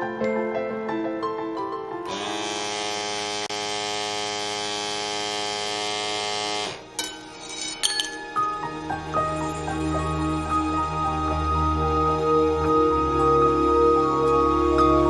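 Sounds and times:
piano music: 0.0 - 2.1, 7.0 - 15.0
small electric motor running: 2.1 - 6.9.

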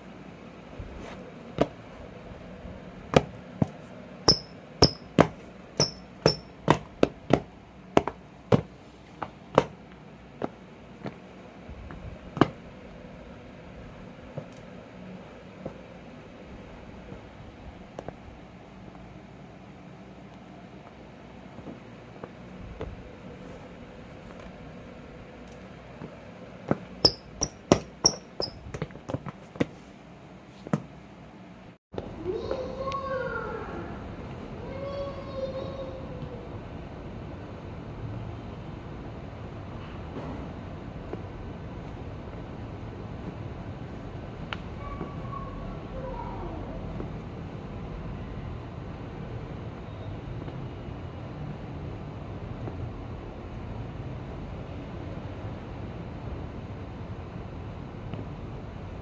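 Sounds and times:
sneaker footsteps on tiled floor: 0.8 - 2.1, 3.1 - 12.6, 25.4 - 31.1
sneaker squeaks: 4.3 - 6.8, 26.8 - 28.9
sneakers knocking on hard floor: 26.7 - 29.7.

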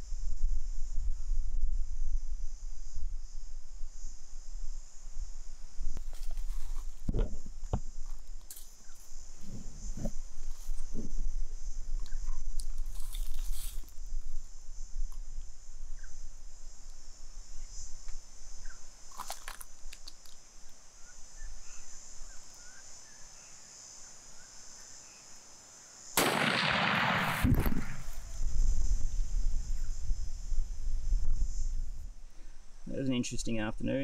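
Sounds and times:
high insect drone: 0.0 - 34.0
loud rifle shot: 26.2 - 28.3.

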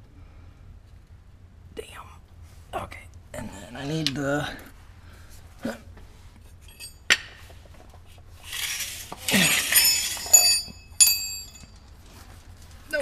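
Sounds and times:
metal tools clinking on concrete: 6.6 - 7.2, 8.4 - 12.0.

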